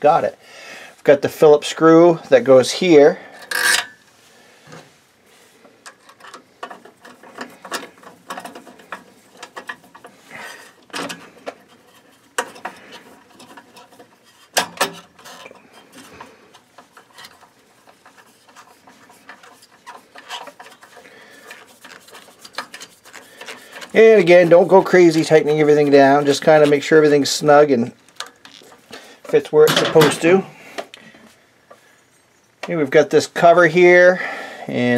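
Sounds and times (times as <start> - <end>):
metal parts clicking and scraping: 3.3 - 4.1, 5.7 - 30.4
screwdriver turning a screw: 5.9 - 27.1.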